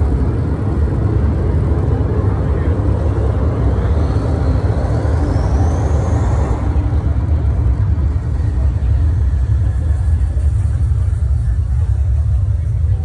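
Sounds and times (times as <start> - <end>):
deep rumble through loudspeakers: 0.0 - 13.0
high rising whistle: 3.8 - 7.6.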